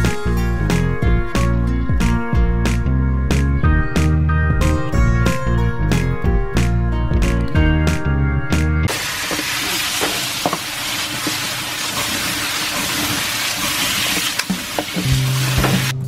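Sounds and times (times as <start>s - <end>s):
background music: 0.0s - 8.9s, 14.9s - 16.0s
meat sizzling in a wok: 8.9s - 16.0s.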